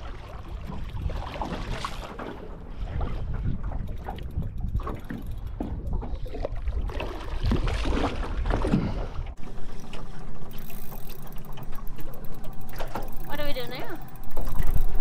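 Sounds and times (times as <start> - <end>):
water splashing from fish: 0.0 - 4.1, 6.0 - 10.6
wind rumbling on microphone: 0.0 - 15.0.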